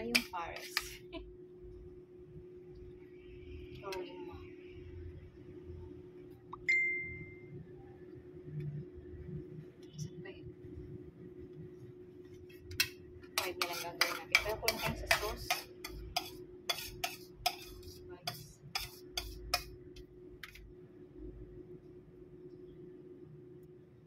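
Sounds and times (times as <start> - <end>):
knife and spoon clinking on plate: 12.8 - 19.7.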